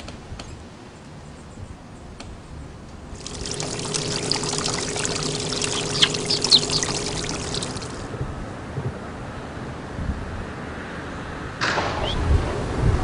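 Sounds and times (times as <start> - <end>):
faint steady hum: 3.1 - 8.1
water pouring and splashing: 3.2 - 8.1.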